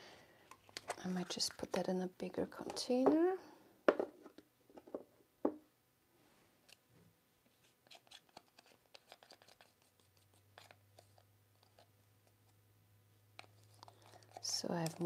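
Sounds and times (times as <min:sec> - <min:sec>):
stir stick scraping a jar: 0:07.8 - 0:11.9.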